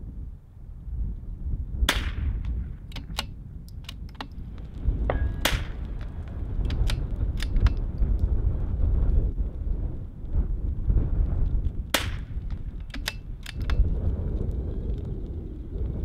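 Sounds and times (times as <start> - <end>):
wind buffeting microphone: 0.0 - 16.0
rifle shots with echo: 1.8 - 3.4, 5.1 - 6.0, 11.9 - 13.8.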